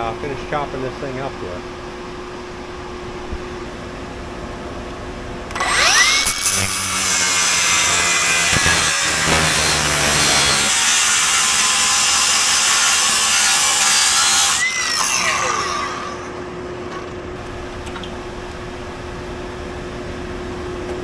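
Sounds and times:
fan hum: 0:00.0 - 0:14.2, 0:15.3 - 0:21.0
angle grinder cutting metal: 0:05.5 - 0:16.4.

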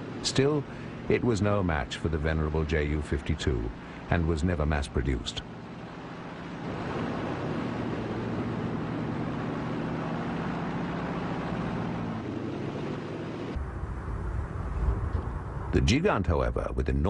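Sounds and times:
propeller aircraft engines droning: 0:00.0 - 0:17.0
rushing wind-like noise: 0:03.0 - 0:17.0
deep rumble: 0:06.2 - 0:17.0.

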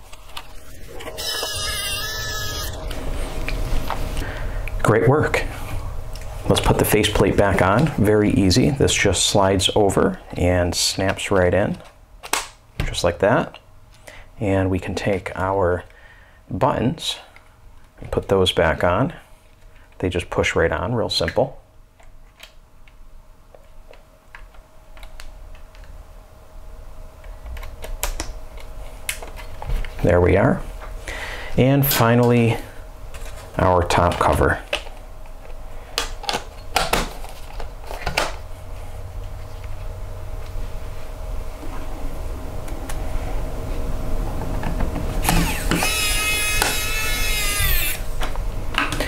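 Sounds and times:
faint steady hum: 0:00.0 - 0:49.0
electric screwdriver motor whining: 0:00.3 - 0:02.8, 0:45.2 - 0:48.3.

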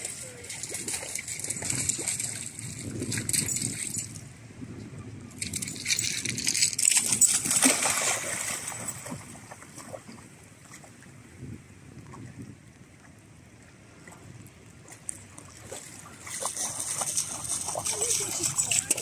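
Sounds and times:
dog splashing through water: 0:00.0 - 0:04.0, 0:05.6 - 0:10.9, 0:14.8 - 0:19.0.

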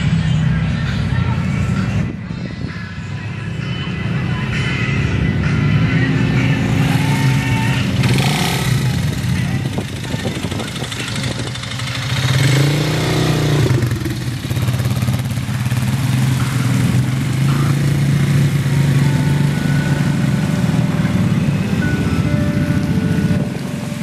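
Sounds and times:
quad engine revving: 0:05.9 - 0:24.0
vehicle driving through water: 0:12.2 - 0:24.0.

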